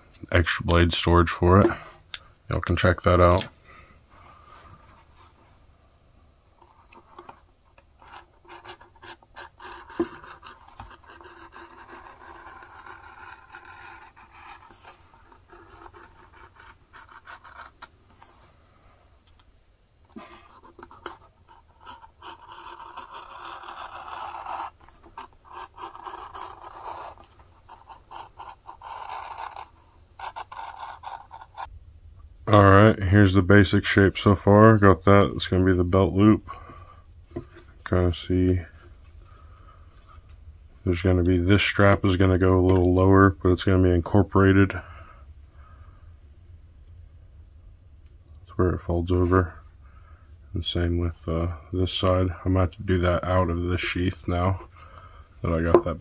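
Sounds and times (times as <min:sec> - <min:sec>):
knife cutting leather rasping: 0:08.0 - 0:17.9, 0:20.1 - 0:31.7.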